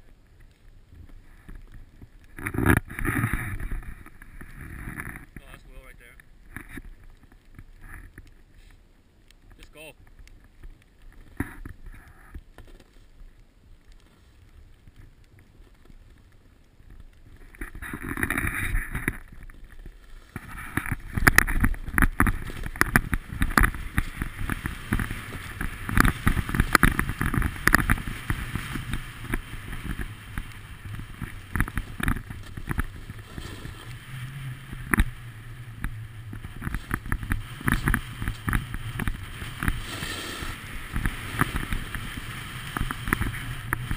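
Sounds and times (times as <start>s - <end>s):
wind rumbling on microphone: 0.0s - 43.9s
edges scraping over snow: 19.8s - 43.9s.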